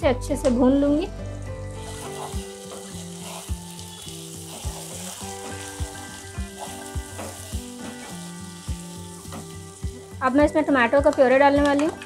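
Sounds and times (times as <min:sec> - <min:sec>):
food sizzling in oil: 0:01.6 - 0:11.0.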